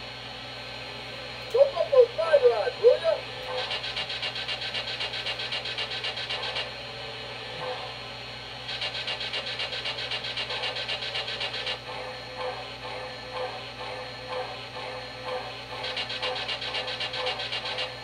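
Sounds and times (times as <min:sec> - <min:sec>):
steady low hum: 0:00.0 - 0:18.0
rapid pulsing steam hiss: 0:03.5 - 0:06.9, 0:08.4 - 0:18.0.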